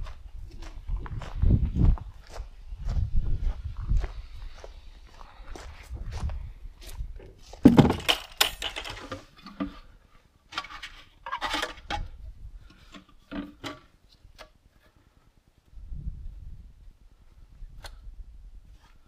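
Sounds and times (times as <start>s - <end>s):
hard objects knocking and clinking: 7.6s - 9.0s.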